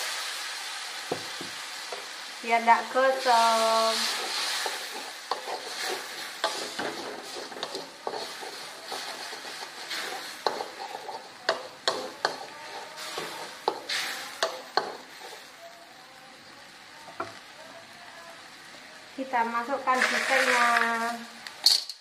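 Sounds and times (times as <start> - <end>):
sizzling: 0.0 - 22.0
wooden spatula scraping a wok: 3.3 - 15.6, 19.9 - 21.2.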